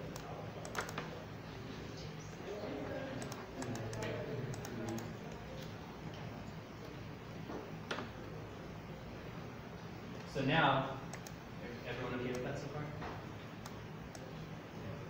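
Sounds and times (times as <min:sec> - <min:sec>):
keyboard typing: 0:00.0 - 0:01.2, 0:03.1 - 0:05.8, 0:11.1 - 0:11.4
mouse clicks: 0:03.2 - 0:05.7, 0:11.1 - 0:11.4.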